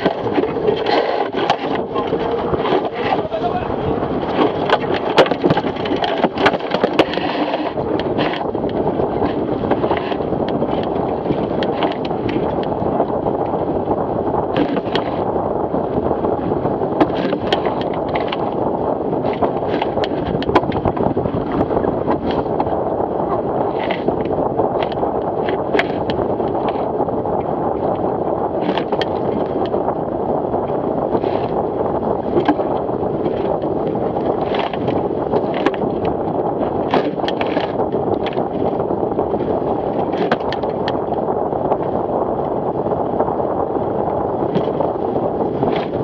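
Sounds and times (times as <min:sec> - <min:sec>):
water rushing past hull: 0:00.0 - 0:46.0
wind buffeting microphone: 0:00.0 - 0:46.0
knocks from boat hull: 0:17.0 - 0:18.4, 0:40.1 - 0:41.0.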